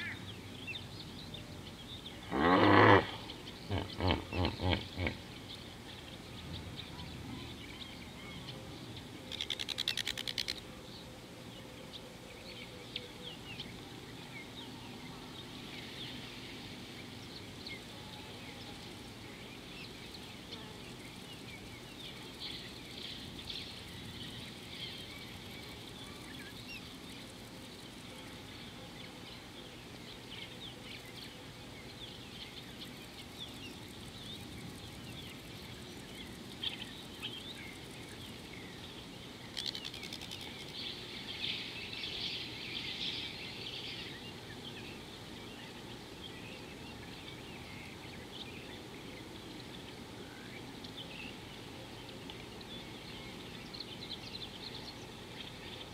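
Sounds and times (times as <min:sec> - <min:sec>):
birds chirping: 0:00.0 - 0:55.9
loud rapid rattling bird call: 0:02.2 - 0:05.3, 0:09.3 - 0:10.6, 0:39.4 - 0:41.0.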